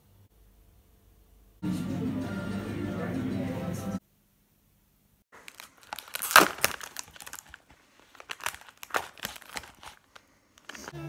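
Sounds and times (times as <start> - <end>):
cling film crinkling and tearing: 5.4 - 10.9.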